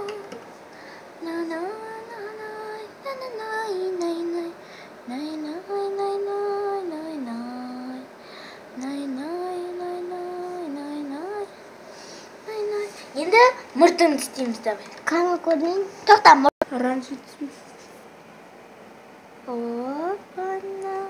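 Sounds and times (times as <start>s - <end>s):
child singing: 19.5s - 21.0s.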